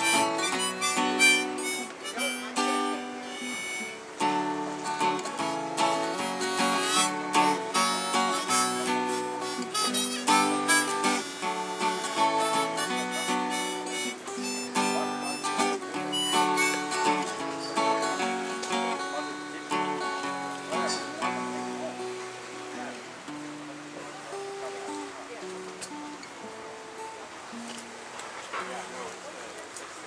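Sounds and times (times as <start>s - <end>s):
harmonica: 0.0s - 19.8s
strummed acoustic guitar: 0.0s - 29.8s.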